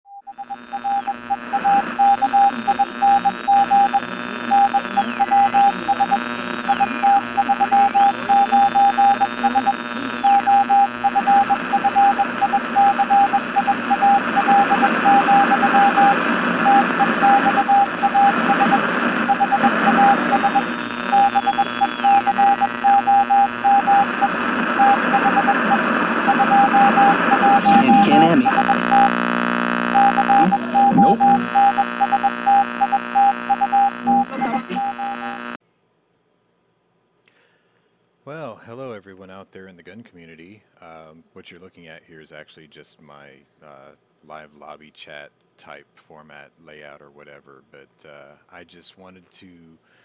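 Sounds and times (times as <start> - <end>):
morse code beeping: 0.1 - 29.1, 29.9 - 35.4
radio hiss and static: 0.4 - 35.6.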